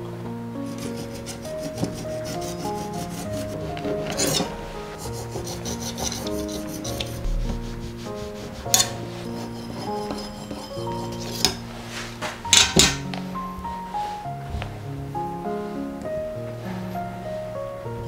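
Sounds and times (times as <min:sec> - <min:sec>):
soft background music: 0:00.0 - 0:18.0
knife sawing through cake: 0:00.7 - 0:11.5.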